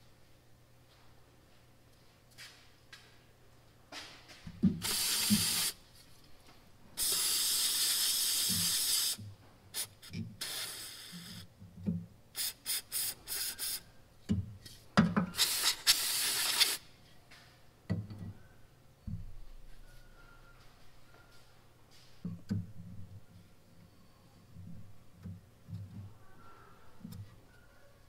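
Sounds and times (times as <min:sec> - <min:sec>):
aerosol spray can hissing: 0:04.8 - 0:05.8, 0:07.0 - 0:09.2, 0:09.8 - 0:11.4, 0:12.4 - 0:13.8, 0:15.4 - 0:16.8.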